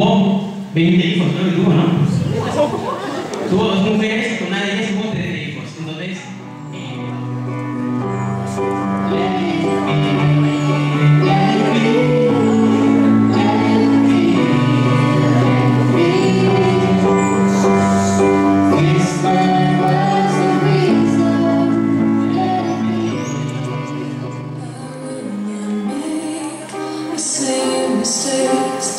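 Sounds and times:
electronic keyboard chords: 0:06.0 - 0:28.9
girl singing into microphone: 0:08.7 - 0:28.9.

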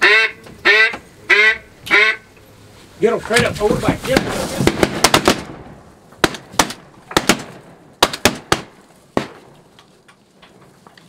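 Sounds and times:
shotgun shots: 0:04.1 - 0:09.6.

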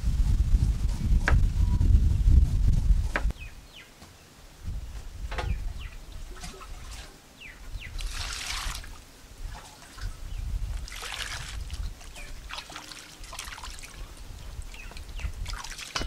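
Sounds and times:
low rumble: 0:00.0 - 0:03.4
birds chirping: 0:02.8 - 0:08.6, 0:11.8 - 0:12.9, 0:13.8 - 0:16.0
water poured into a bowl: 0:08.0 - 0:09.0, 0:10.8 - 0:14.2
water splash: 0:08.0 - 0:10.1, 0:10.8 - 0:14.1, 0:15.4 - 0:16.0.

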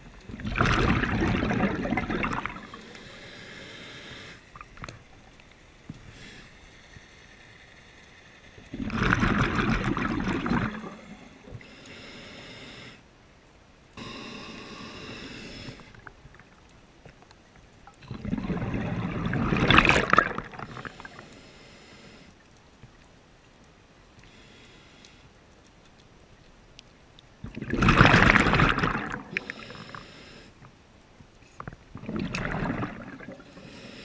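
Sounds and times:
exhaled bubbles gurgling: 0:00.0 - 0:03.2, 0:08.6 - 0:11.7, 0:17.9 - 0:21.2, 0:27.4 - 0:30.0, 0:31.6 - 0:34.0
hissing inhalation through regulator: 0:01.0 - 0:04.6, 0:05.9 - 0:08.6, 0:10.2 - 0:13.0, 0:14.0 - 0:16.1, 0:20.4 - 0:22.4, 0:24.2 - 0:25.3, 0:29.2 - 0:30.6, 0:32.4 - 0:34.0.

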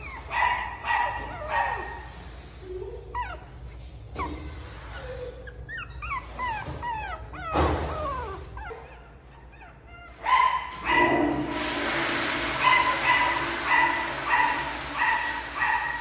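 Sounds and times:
puppies whining: 0:00.0 - 0:11.2.

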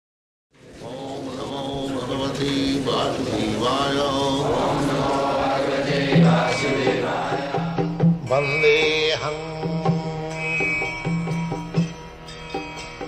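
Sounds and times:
voice chanting: 0:00.7 - 0:10.4
sitar music: 0:00.7 - 0:13.0.

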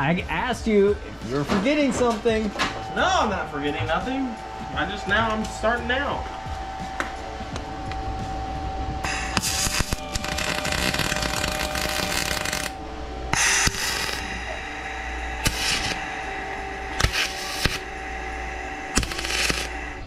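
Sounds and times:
welder arc crackling hiss: 0:09.0 - 0:14.6, 0:15.4 - 0:16.2, 0:16.9 - 0:18.0, 0:18.8 - 0:20.0.

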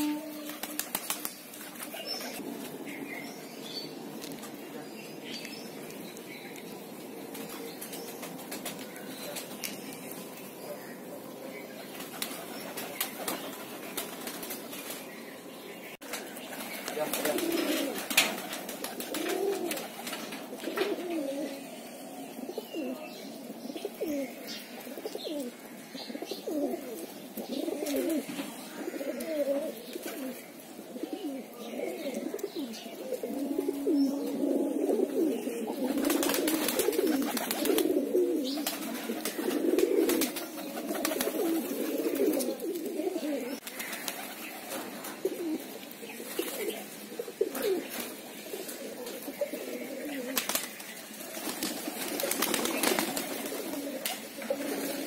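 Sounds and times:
pigeons cooing: 0:00.0 - 0:02.9, 0:16.5 - 0:55.0.

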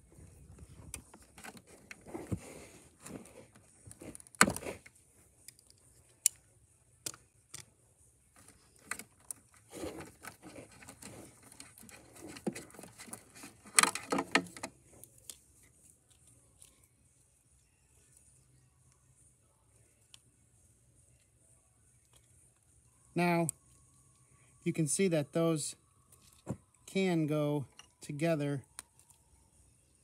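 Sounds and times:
wires and connectors rustling: 0:00.0 - 0:06.3, 0:08.3 - 0:16.9.

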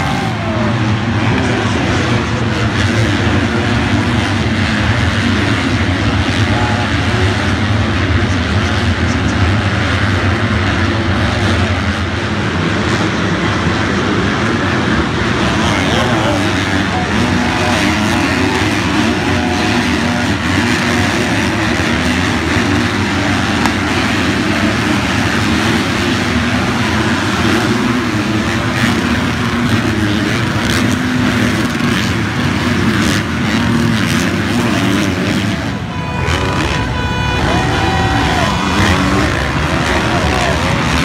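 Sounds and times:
dirt bike engines revving: 0:00.0 - 0:41.0.

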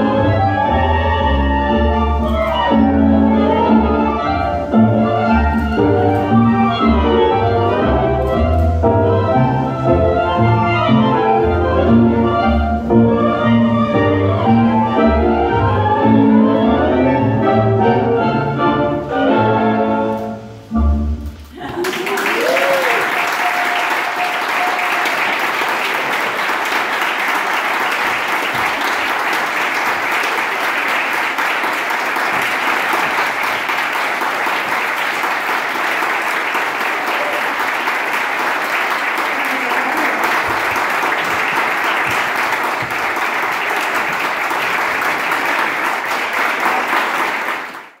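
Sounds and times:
audience applauding: 0:21.6 - 0:48.0.

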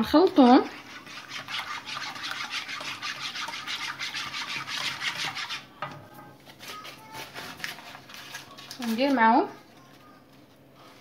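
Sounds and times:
whisk scraping a saucepan: 0:00.0 - 0:05.8, 0:07.1 - 0:09.0.

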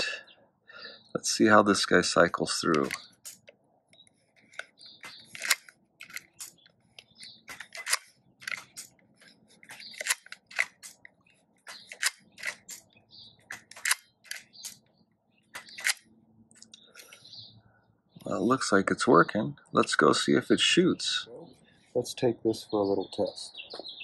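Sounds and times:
toy gun mechanism clicking: 0:02.7 - 0:03.5, 0:04.4 - 0:09.0, 0:09.6 - 0:11.1, 0:11.7 - 0:12.9, 0:13.5 - 0:14.8, 0:15.6 - 0:16.1.

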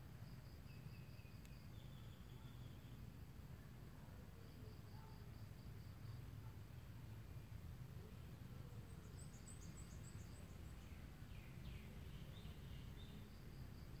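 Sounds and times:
low steady rumble: 0:00.0 - 0:14.0
insect trill: 0:00.2 - 0:03.0
bird chirping: 0:00.6 - 0:03.0, 0:08.8 - 0:13.6.

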